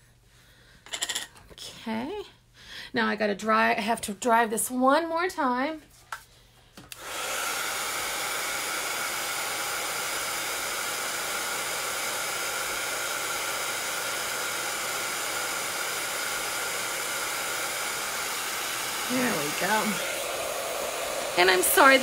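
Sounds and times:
heat tool blowing air: 6.9s - 22.0s.

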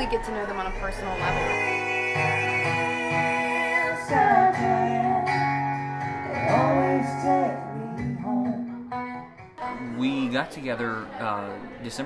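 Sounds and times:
acoustic guitars strummed: 0.0s - 10.4s
man and woman singing: 1.0s - 5.6s, 6.2s - 10.3s.

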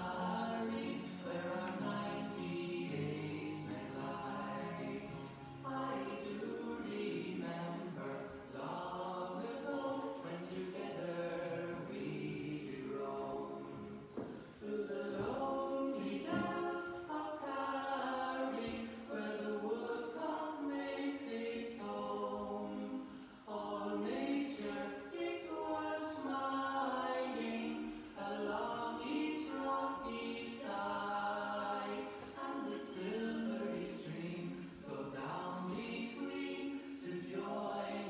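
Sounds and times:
choir singing unaccompanied: 0.0s - 38.0s.

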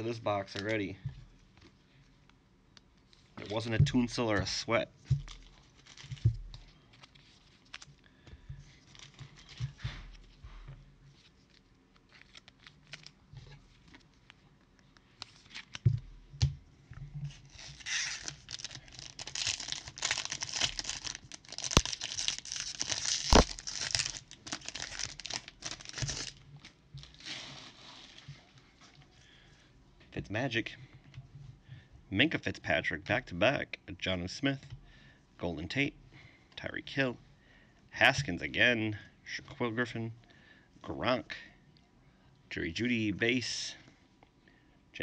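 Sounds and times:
wrapper tearing and crinkling: 5.3s - 6.2s, 17.5s - 26.4s.

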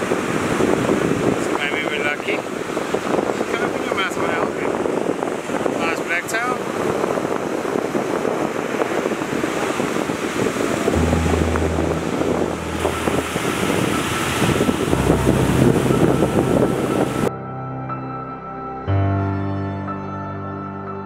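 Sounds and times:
wind buffeting microphone: 0.0s - 17.3s
ocean surf washing in: 4.8s - 17.3s
soft ambient music: 10.9s - 21.0s.

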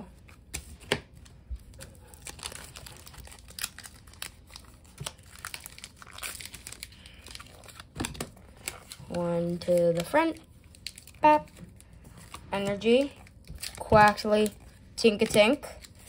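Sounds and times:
foil wrapper crinkling and tearing: 1.2s - 16.0s.

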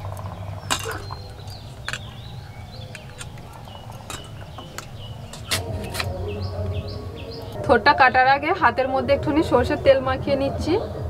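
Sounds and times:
small birds chirping: 0.0s - 8.8s.

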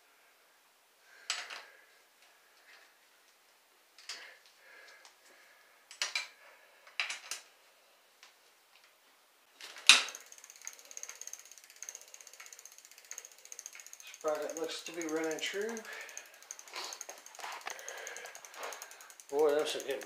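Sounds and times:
freewheel pawls clicking rapidly: 10.0s - 20.0s.

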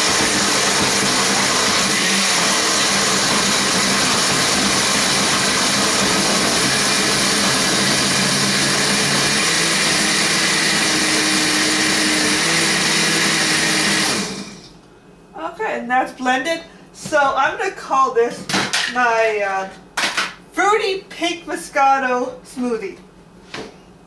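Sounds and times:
blender motor running: 0.0s - 14.8s.

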